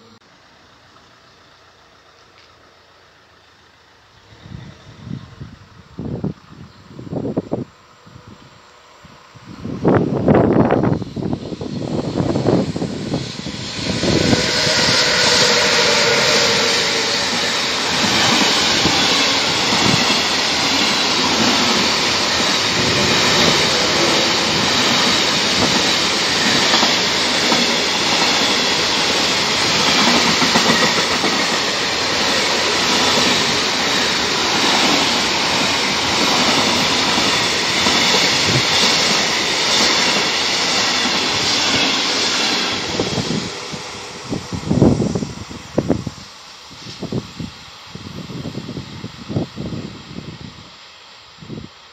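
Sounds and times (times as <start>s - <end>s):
faint locomotive whine: 0.0s - 51.9s
freight train wheels clattering: 10.4s - 45.2s.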